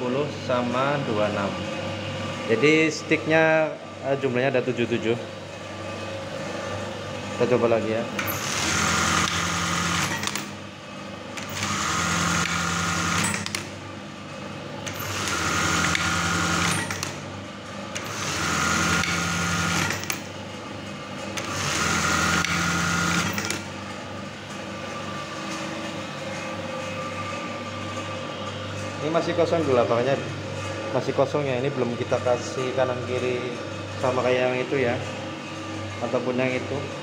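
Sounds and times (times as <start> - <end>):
steady motor hum: 0.0 - 37.0
sewing machine running: 8.2 - 10.6, 11.4 - 13.7, 14.8 - 17.2, 17.9 - 20.3, 21.4 - 23.7.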